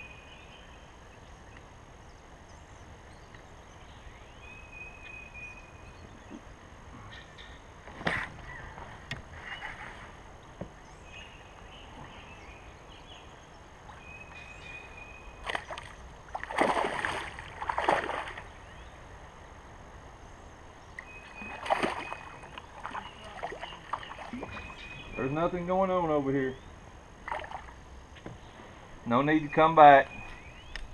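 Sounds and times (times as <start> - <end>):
water splashing against kayak hull: 15.4 - 18.6, 21.0 - 24.9, 27.2 - 27.8.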